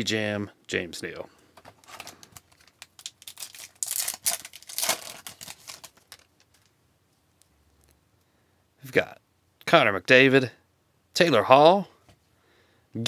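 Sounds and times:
foil wrapper crinkling and tearing: 0:01.8 - 0:06.7.

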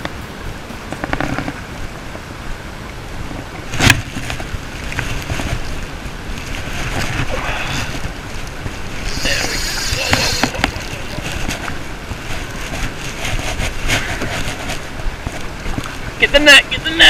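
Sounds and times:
wind buffeting microphone: 0:00.0 - 0:16.8
fishing reel cranking: 0:09.0 - 0:10.9.

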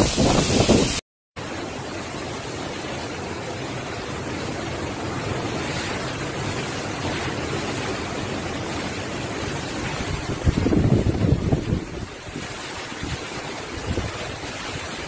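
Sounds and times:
strong wind rushing: 0:00.0 - 0:01.0, 0:09.9 - 0:14.4.

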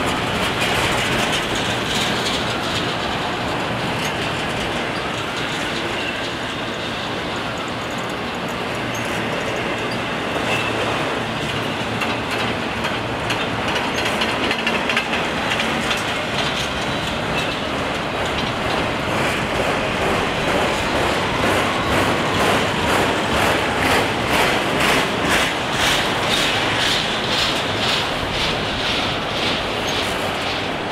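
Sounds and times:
train wheels rumbling on rail: 0:00.0 - 0:30.9
wheels clicking over rail joints: 0:00.0 - 0:30.9
faint wheel squeal: 0:08.9 - 0:10.8.

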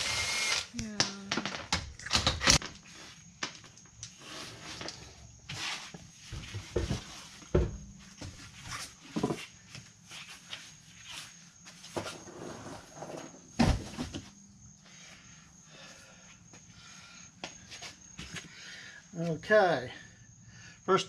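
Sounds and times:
knocks and thumps of a wheel: 0:06.4 - 0:08.4.

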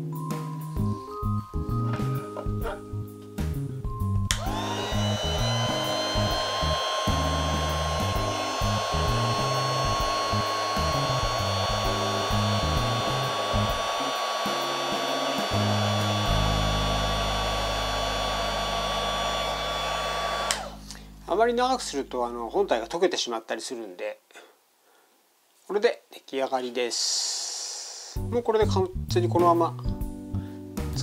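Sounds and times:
heat gun blowing with whine: 0:04.3 - 0:21.0.

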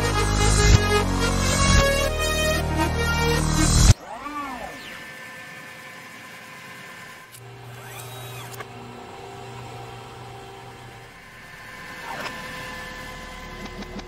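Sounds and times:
synthesizer tones with pitch sweeps: 0:00.0 - 0:07.2.

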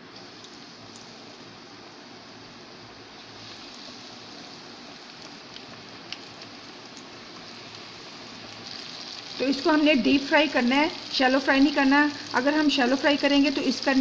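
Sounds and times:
chicken deep-frying in oil: 0:00.0 - 0:14.0
oil crackles and pops: 0:03.2 - 0:09.8.

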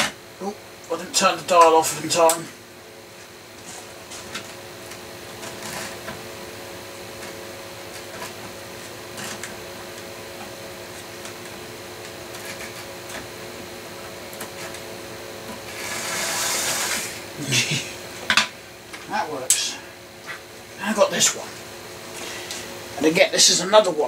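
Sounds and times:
small electric motor whirring: 0:15.6 - 0:17.2.

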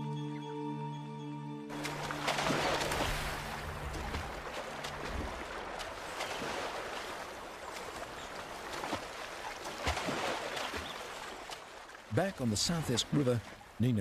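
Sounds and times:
background music low notes: 0:00.0 - 0:06.3
river water rushing: 0:01.7 - 0:13.9.

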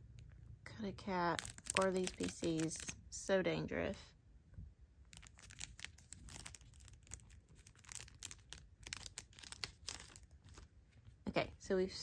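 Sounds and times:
plastic wrapping crinkling and tearing: 0:01.3 - 0:03.0, 0:05.1 - 0:10.8.

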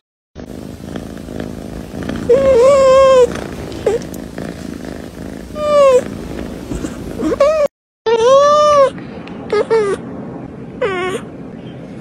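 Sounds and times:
cat purring: 0:00.4 - 0:07.7
cat mewing: 0:02.1 - 0:04.2, 0:05.4 - 0:06.1, 0:06.7 - 0:08.9.

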